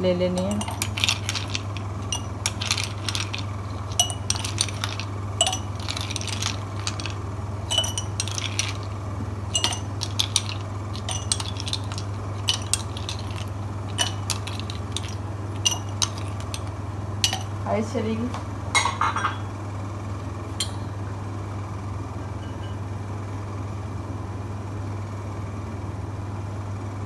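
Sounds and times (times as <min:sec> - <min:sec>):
steady low hum: 0:00.0 - 0:27.0
ice clinking on glass: 0:00.4 - 0:17.6.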